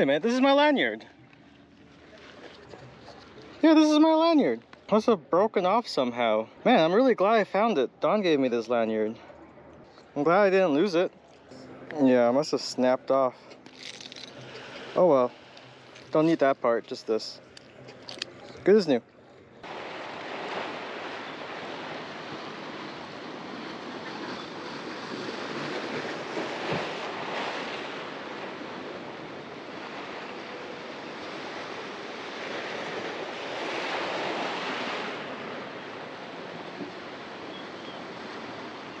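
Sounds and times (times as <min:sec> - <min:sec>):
wind: 0:00.0 - 0:39.0
ocean surf against rocks: 0:19.6 - 0:39.0.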